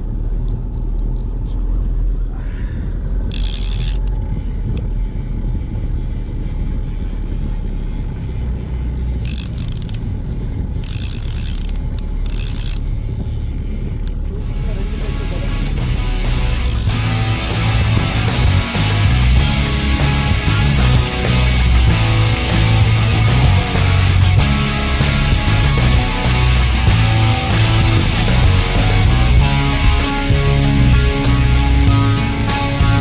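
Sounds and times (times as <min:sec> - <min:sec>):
wind rumbling on microphone: 0:00.0 - 0:18.4
outboard motor running: 0:00.0 - 0:33.0
fishing reel cranking: 0:03.1 - 0:14.3, 0:15.0 - 0:33.0.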